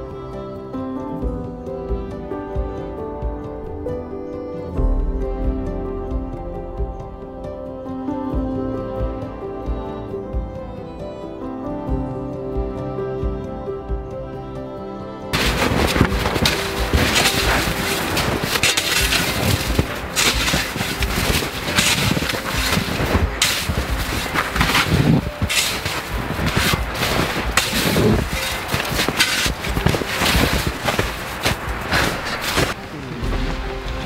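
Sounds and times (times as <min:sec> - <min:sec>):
instrumental music with soft beat: 0:00.0 - 0:34.0
snow shovels crunching and scraping: 0:15.3 - 0:34.0.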